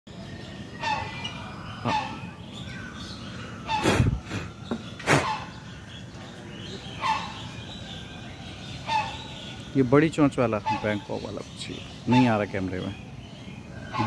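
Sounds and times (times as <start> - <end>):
large bird calling: 0.1 - 14.0.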